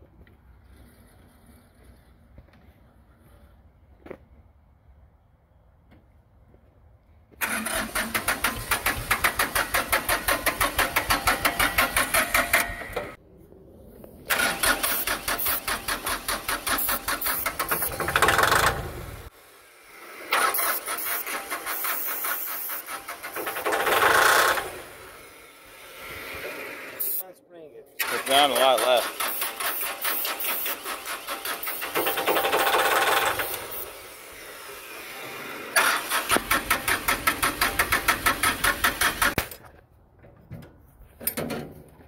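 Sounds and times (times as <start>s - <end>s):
diesel engine cranking by starter: 7.4s - 13.2s, 14.2s - 19.3s, 20.2s - 26.1s, 28.0s - 39.6s.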